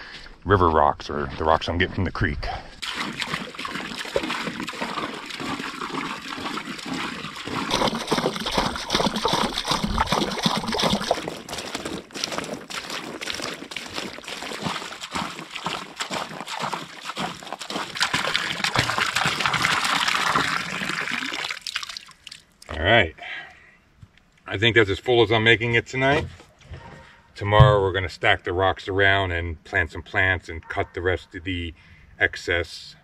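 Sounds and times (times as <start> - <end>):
water pouring into pool: 2.8 - 22.7
water splashing: 2.8 - 22.7.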